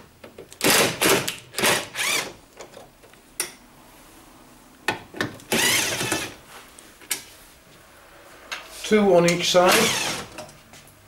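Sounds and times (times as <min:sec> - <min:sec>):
cordless drill spinning: 0:00.6 - 0:02.3, 0:05.5 - 0:06.4, 0:09.7 - 0:10.3.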